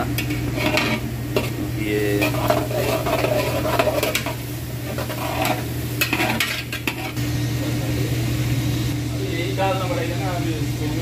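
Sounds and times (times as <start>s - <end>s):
oil sizzling: 0.0s - 11.0s
steady low hum: 0.0s - 11.0s
metal spoon scraping metal pot: 0.2s - 1.6s, 2.2s - 7.2s.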